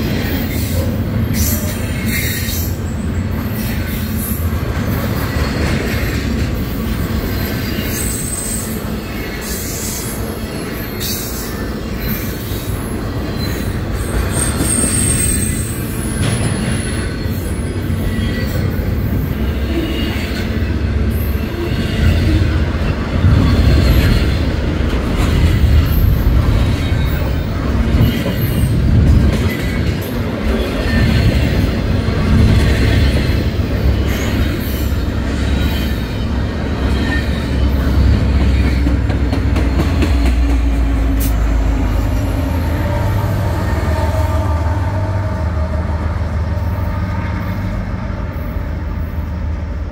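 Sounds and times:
train wheels rumbling on rails: 0:00.0 - 0:49.9
high wheel squeal: 0:07.0 - 0:22.6
diesel locomotive rumble: 0:11.7 - 0:49.9.

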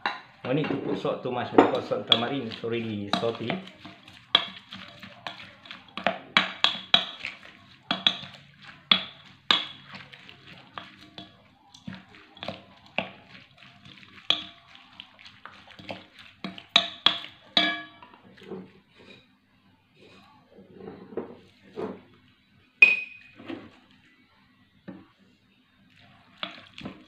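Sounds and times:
wooden spoon knocking glass bowl: 0:01.6 - 0:13.3, 0:14.1 - 0:14.6, 0:15.8 - 0:18.0.

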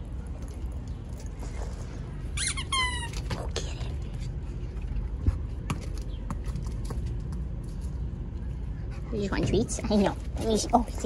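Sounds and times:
squeaky toy squeaking: 0:02.3 - 0:03.2.

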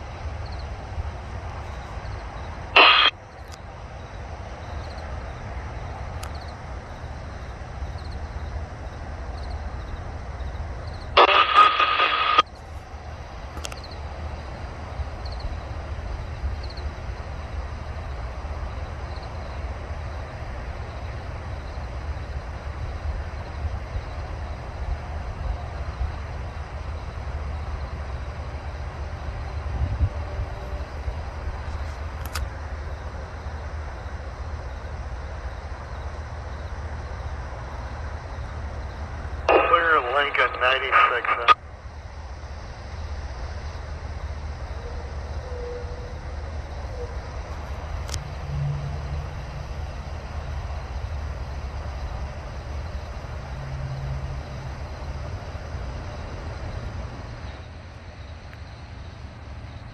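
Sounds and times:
train rumbling: 0:12.6 - 0:39.5, 0:42.0 - 0:59.9.

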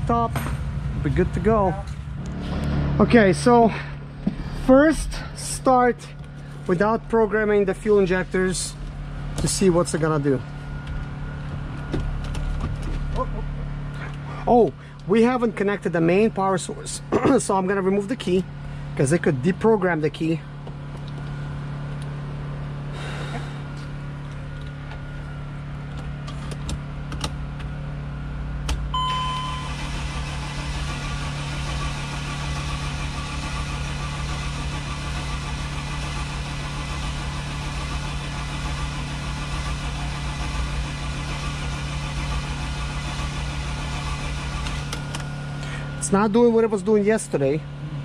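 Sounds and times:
diesel engine cranking: 0:00.0 - 0:22.2, 0:28.4 - 0:46.6
steady low hum: 0:00.0 - 0:48.0
short dashboard beep: 0:28.9 - 0:29.8.

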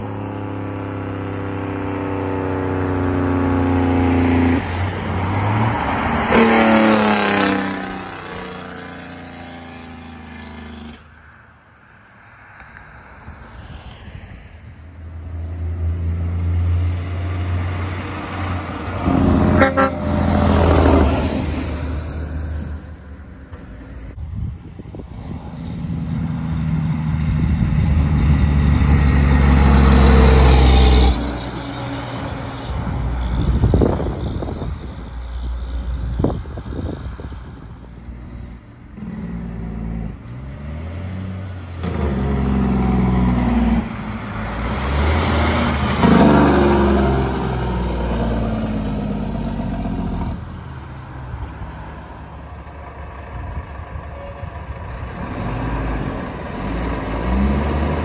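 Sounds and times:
diesel trucks engine braking: 0:00.0 - 0:11.1, 0:15.3 - 0:23.1, 0:25.1 - 0:36.9, 0:38.9 - 0:58.0.

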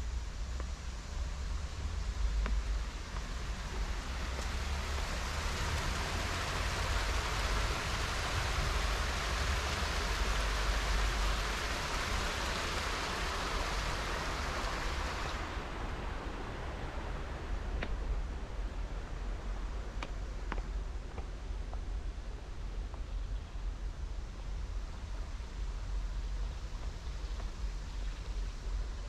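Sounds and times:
running water rushing: 0:01.0 - 0:21.2.

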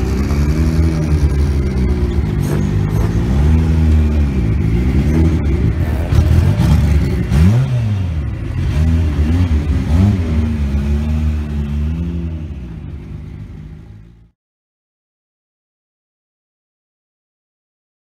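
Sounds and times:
car engine throttle blips: 0:00.0 - 0:14.3.

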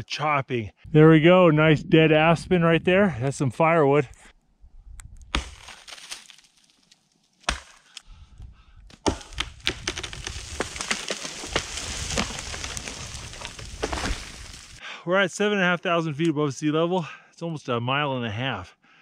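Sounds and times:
wood cracking and splintering: 0:05.2 - 0:08.0, 0:08.9 - 0:14.8.

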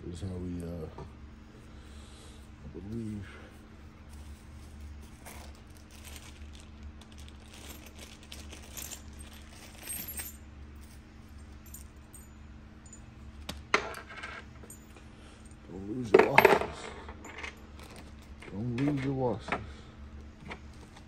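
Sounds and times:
low steady hum: 0:00.0 - 0:21.0
small metal parts clinking: 0:04.2 - 0:13.1, 0:13.7 - 0:19.1.

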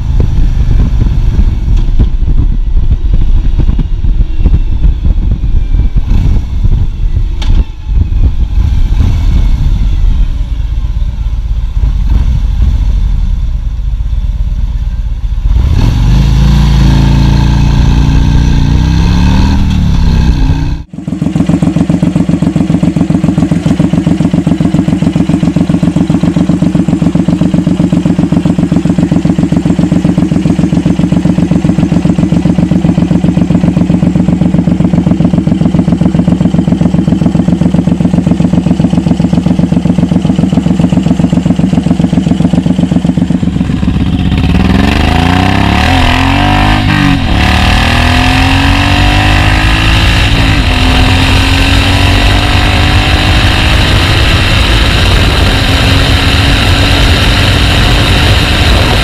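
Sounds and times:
motorcycle engine idling: 0:00.0 - 0:15.5, 0:20.8 - 0:45.1
motorcycle engine revving while riding: 0:15.5 - 0:59.0.

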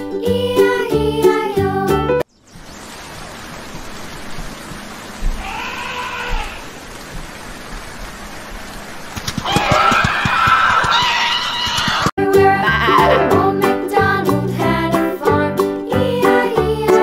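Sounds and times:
steady rain: 0:02.4 - 0:12.1
animal call rising and falling: 0:09.4 - 0:12.1, 0:12.7 - 0:13.6.

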